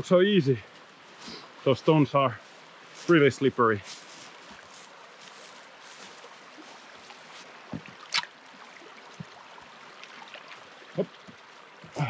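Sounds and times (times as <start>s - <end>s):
footsteps on stones: 3.8s - 7.9s.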